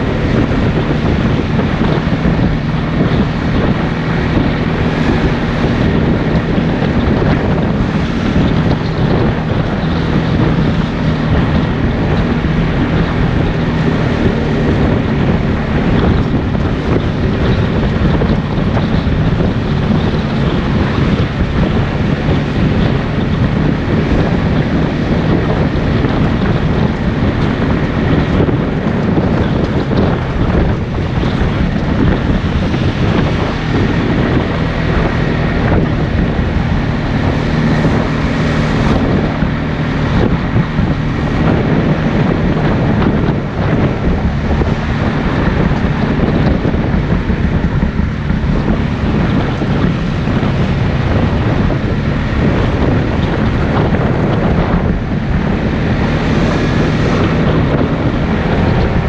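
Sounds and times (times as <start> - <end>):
atv engine running: 0.0 - 59.0
wind buffeting microphone: 0.0 - 59.0.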